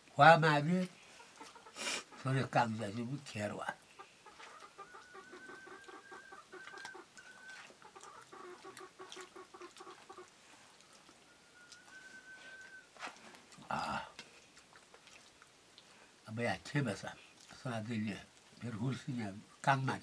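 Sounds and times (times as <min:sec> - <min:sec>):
chicken clucking: 0:01.1 - 0:02.5, 0:04.0 - 0:10.3.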